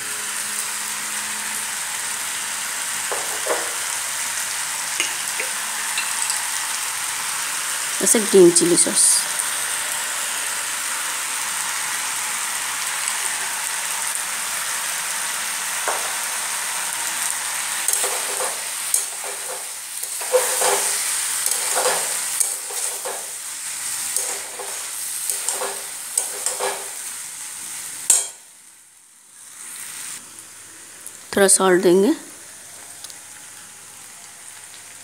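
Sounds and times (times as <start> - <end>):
food sizzling in a pan: 0.0 - 35.0
metal spatula scraping pan: 17.9 - 23.4, 24.1 - 27.0.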